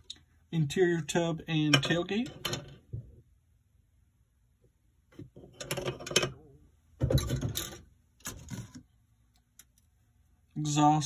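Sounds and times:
plastic parts clattering and rustling: 0:07.0 - 0:08.8.

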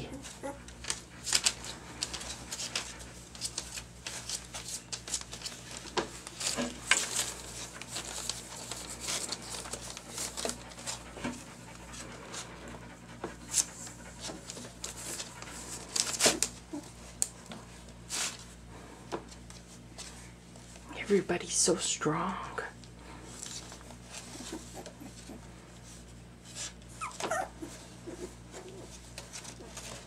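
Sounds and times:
puppy noises: 0:00.0 - 0:17.5, 0:23.5 - 0:30.0
puppy paws scratching on wood: 0:00.0 - 0:21.3, 0:22.8 - 0:30.0
newspaper rustling: 0:00.7 - 0:11.2, 0:13.5 - 0:18.6.

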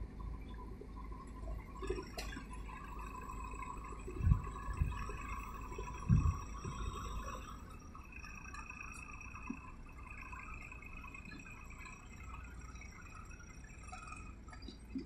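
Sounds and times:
faint diesel engine rumble: 0:00.0 - 0:15.0
thin steady high tone: 0:00.0 - 0:15.0.

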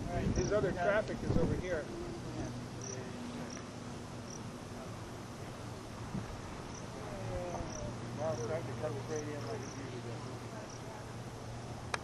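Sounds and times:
steady outdoor hiss: 0:00.0 - 0:12.0
insect chirping: 0:00.3 - 0:00.6, 0:02.4 - 0:05.8, 0:06.6 - 0:10.0.

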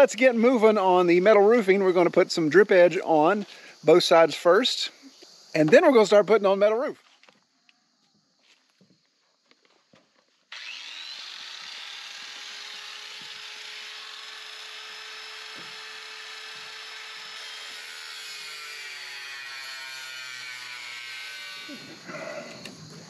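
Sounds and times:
cordless power tool cutting metal: 0:10.5 - 0:22.0.

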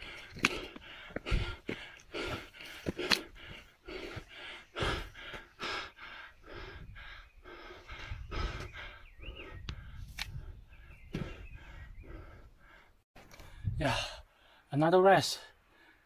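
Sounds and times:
man panting: 0:00.0 - 0:14.7.

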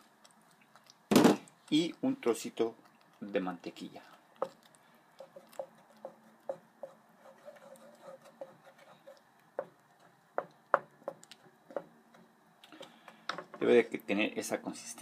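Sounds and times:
wooden spoon knocking on pan: 0:09.6 - 0:12.3.

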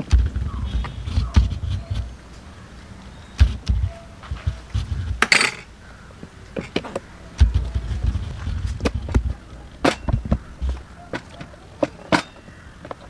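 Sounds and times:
sharp knocks: 0:00.0 - 0:02.1, 0:03.4 - 0:05.7, 0:06.6 - 0:13.0
dull low thumps: 0:00.0 - 0:02.3, 0:03.3 - 0:05.3, 0:07.0 - 0:10.9
utensils knocking plastic bowls: 0:05.2 - 0:05.7.

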